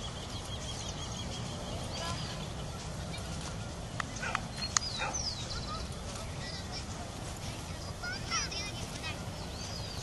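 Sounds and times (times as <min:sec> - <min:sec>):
birds chirping and whistling: 0:00.0 - 0:06.6, 0:09.0 - 0:10.0.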